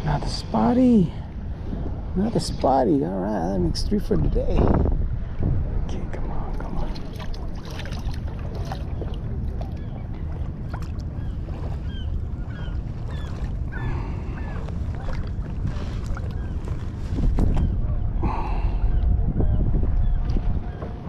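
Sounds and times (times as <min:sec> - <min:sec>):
water lapping: 0:00.0 - 0:21.0
wind buffeting microphone: 0:00.0 - 0:21.0
light water splashing: 0:06.4 - 0:17.7.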